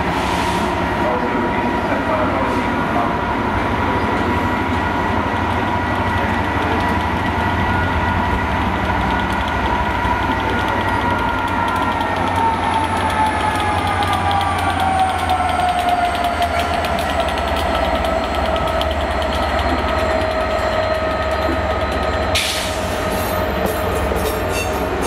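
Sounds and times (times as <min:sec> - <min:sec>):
diesel locomotive engine drone: 0:00.0 - 0:25.0
wheels clicking over rails: 0:08.9 - 0:22.2.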